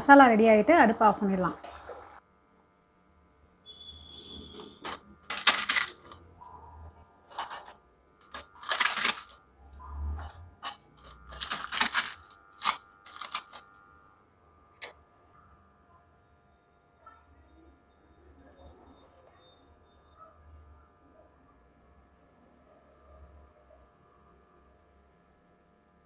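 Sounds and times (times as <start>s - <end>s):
fried snack crunching by hand: 4.8s - 6.2s, 7.3s - 9.4s, 10.1s - 13.7s.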